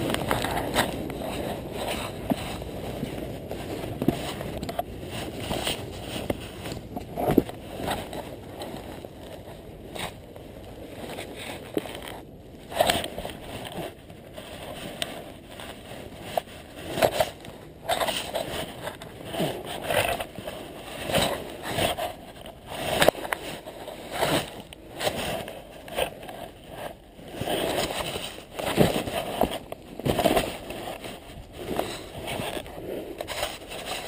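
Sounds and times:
wind buffeting microphone: 0.0 - 17.8
fabric rustling: 0.0 - 34.0.

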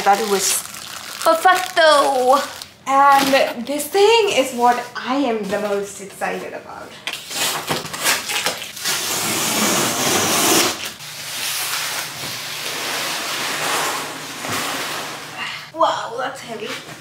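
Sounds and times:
tape tearing on cardboard box: 7.1 - 15.2
box scraping across floor: 9.0 - 15.4.

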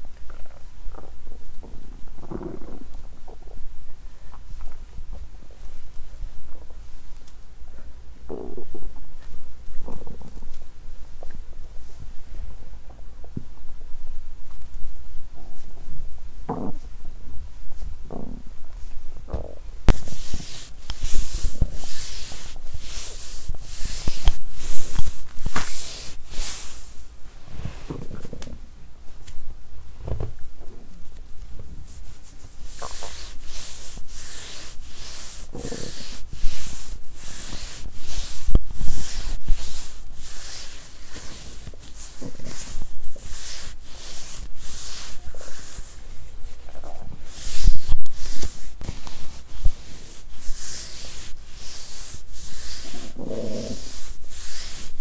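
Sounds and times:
stomach gurgles: 0.1 - 5.6, 8.2 - 11.5, 16.4 - 17.2, 18.0 - 19.8
fingers rubbing on microphone: 17.7 - 28.5, 30.4 - 55.0.

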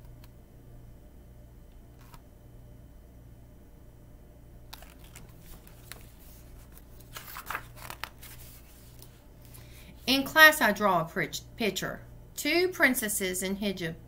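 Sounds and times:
paper rustles of book pages: 4.7 - 9.6.

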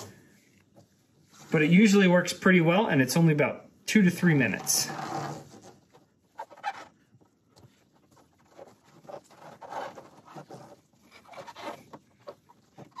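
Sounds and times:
gloved fingers rubbing rubber seal: 4.4 - 13.0.

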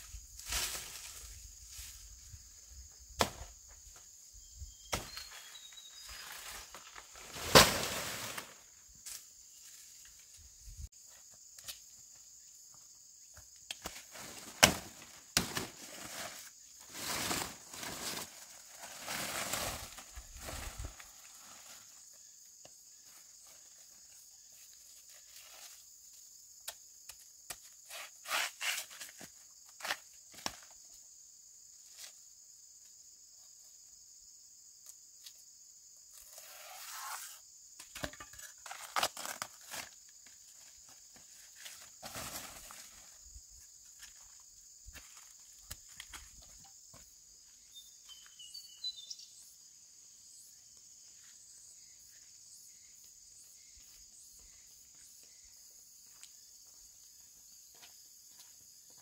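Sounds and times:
high-pitched insect chorus: 0.0 - 59.0
rustling or scraping: 15.5 - 21.9.

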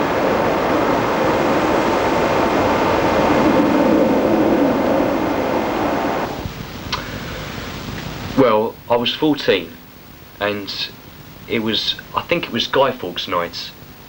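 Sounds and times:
loud rumbling hum: 0.0 - 8.4
faint drone: 0.0 - 8.5.

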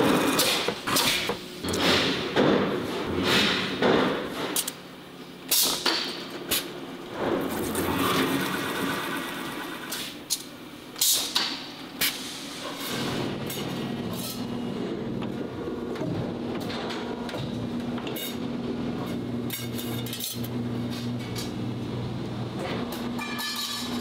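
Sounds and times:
steady machine hum: 6.2 - 11.0, 11.6 - 24.0.

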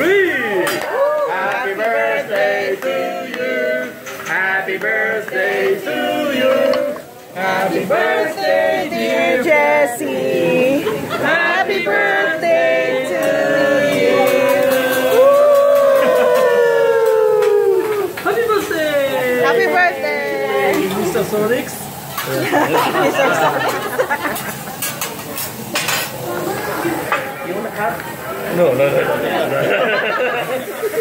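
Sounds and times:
people singing together: 1.0 - 18.2, 19.4 - 24.8.

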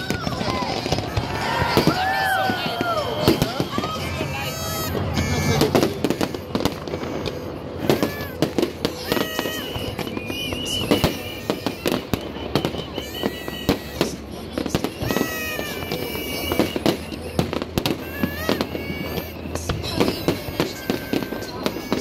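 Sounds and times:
fireworks bursting: 0.0 - 22.0.

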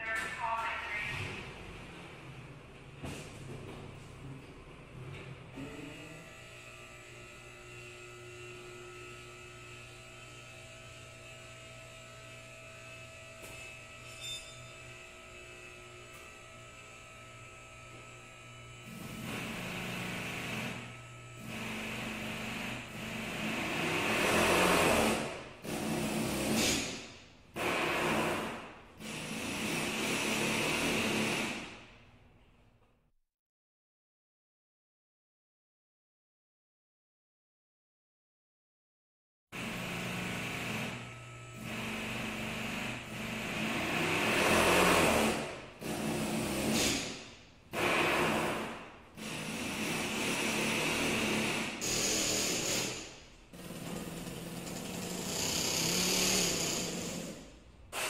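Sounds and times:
small motor running: 50.2 - 57.4.

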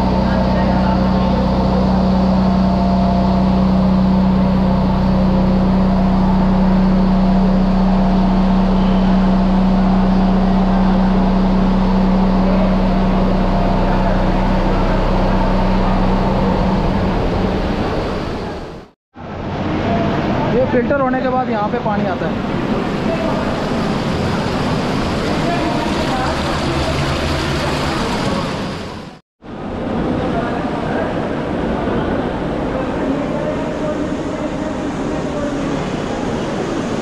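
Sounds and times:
pump machinery drone: 0.0 - 37.0
flowing water rushing: 19.6 - 29.2.

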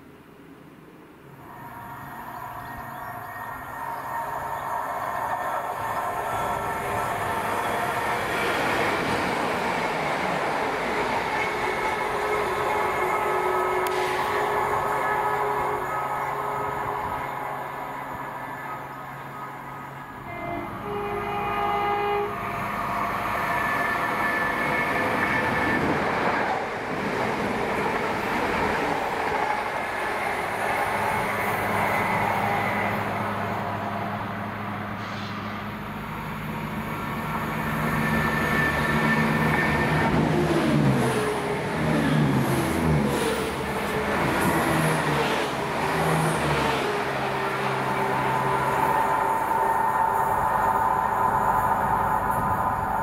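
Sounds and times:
train passing on rails: 0.0 - 53.0
train horn: 1.4 - 8.3, 11.3 - 18.8, 20.1 - 26.1.

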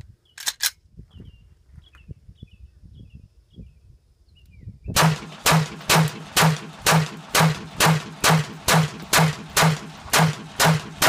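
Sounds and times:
pistol firing single shots: 5.0 - 11.0.

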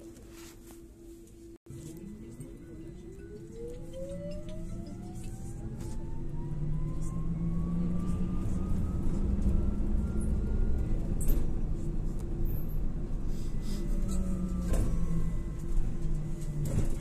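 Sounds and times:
trolleybus electric drive whine: 1.2 - 17.0.

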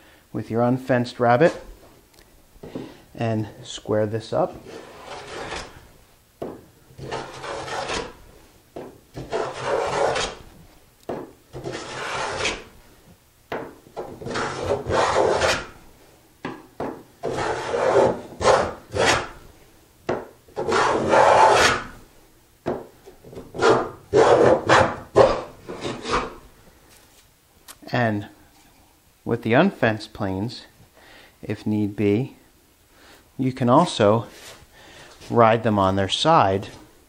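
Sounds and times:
hand plane shaving wood: 4.6 - 5.8, 7.0 - 8.2, 9.2 - 10.4, 11.5 - 12.7, 14.2 - 15.7, 17.2 - 19.3, 20.6 - 21.8.

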